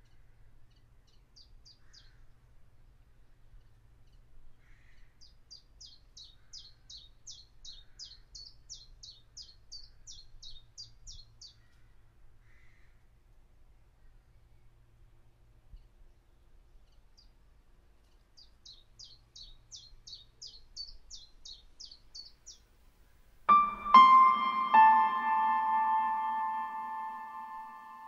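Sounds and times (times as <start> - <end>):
songbird singing: 5.0 - 11.8, 18.0 - 22.8, 23.5 - 28.0.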